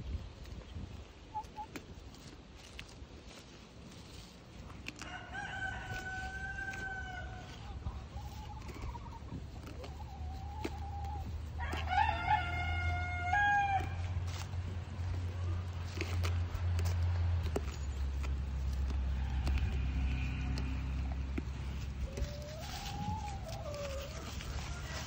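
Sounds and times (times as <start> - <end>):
rooster crowing: 5.0 - 7.5, 11.6 - 14.0.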